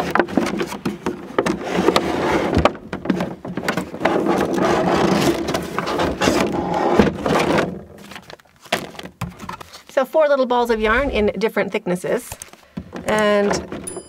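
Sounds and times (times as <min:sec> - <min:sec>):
cardboard scraping: 0:00.0 - 0:09.9, 0:10.6 - 0:11.4
plastic wrapping crinkling: 0:07.8 - 0:09.9.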